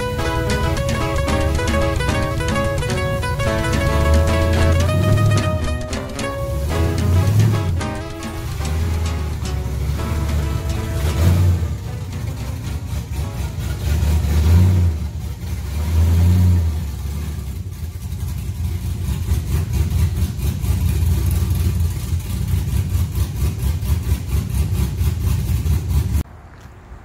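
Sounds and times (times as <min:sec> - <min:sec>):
loud truck engine revving: 0:06.3 - 0:17.5.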